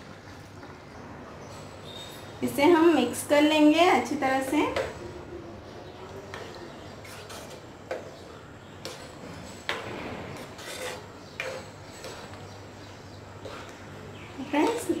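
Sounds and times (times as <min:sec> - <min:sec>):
metal spoon scraping pan: 0:06.3 - 0:15.0.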